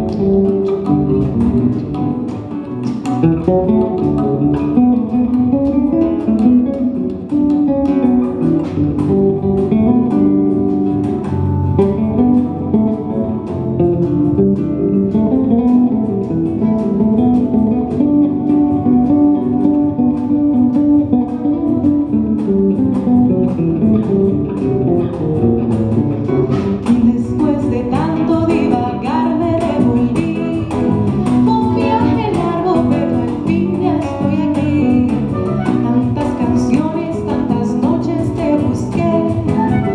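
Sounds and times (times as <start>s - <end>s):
acoustic guitar: 0.0s - 39.9s
electric bass: 0.0s - 39.9s
percussion: 0.0s - 39.9s
woman singing: 26.8s - 39.9s.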